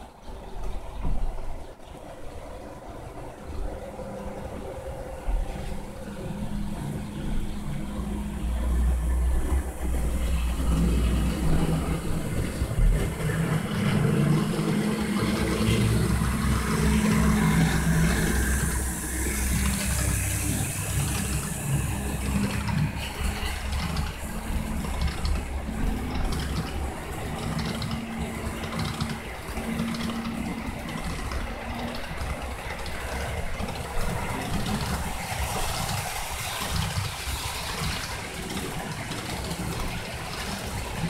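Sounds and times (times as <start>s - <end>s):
model locomotive engine hum: 0.0s - 41.0s
model train cars rolling hiss: 6.5s - 41.0s.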